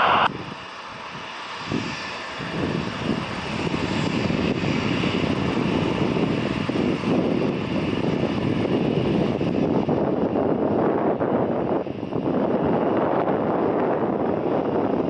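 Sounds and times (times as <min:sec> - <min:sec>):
jet engines at takeoff thrust: 0:00.0 - 0:15.0.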